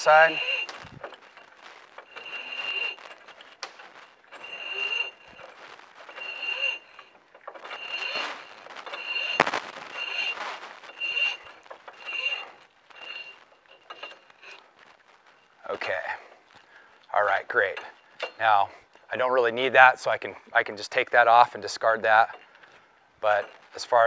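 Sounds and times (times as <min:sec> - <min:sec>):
steel cable squeaking through winch: 0:00.0 - 0:14.6.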